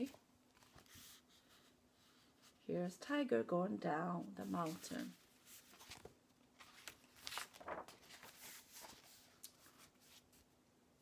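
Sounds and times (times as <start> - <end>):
paper pages rustling: 0.0 - 2.6, 4.4 - 10.4.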